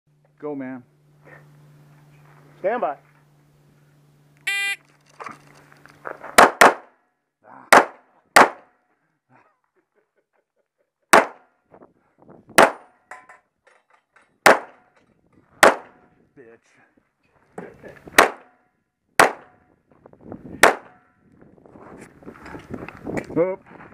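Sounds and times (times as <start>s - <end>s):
handgun shots: 6.4s - 6.9s, 11.1s - 11.4s, 12.6s - 12.9s, 14.4s - 14.8s, 15.6s - 16.0s, 18.2s - 18.6s, 19.2s - 19.5s.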